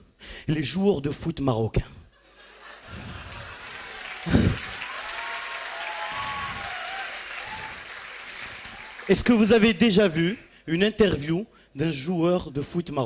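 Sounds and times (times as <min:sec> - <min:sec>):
audience applauding: 0:02.5 - 0:09.8.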